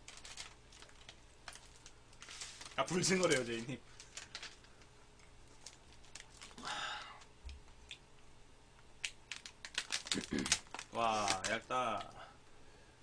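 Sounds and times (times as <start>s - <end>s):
plastic wrapper rustling: 0.0s - 6.6s, 9.0s - 12.1s.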